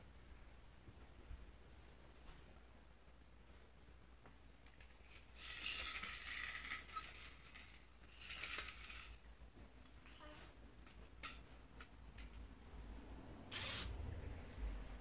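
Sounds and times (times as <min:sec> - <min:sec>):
plastic baby toy rattling: 0:04.7 - 0:09.3, 0:10.8 - 0:11.4.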